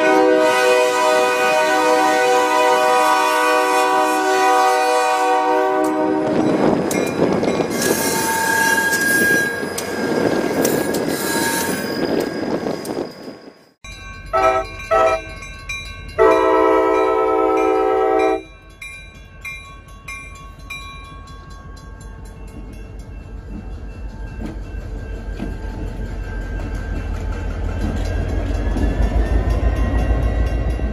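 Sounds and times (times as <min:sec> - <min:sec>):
locomotive air horn blasts: 0:00.0 - 0:06.4, 0:14.3 - 0:15.2, 0:16.2 - 0:18.5
crossing bell ringing: 0:05.3 - 0:30.9
locomotive engine rumbling: 0:14.0 - 0:30.9.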